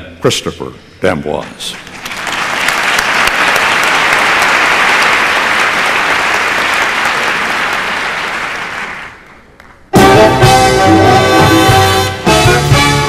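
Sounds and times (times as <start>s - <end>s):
audience applauding: 1.8s - 9.9s.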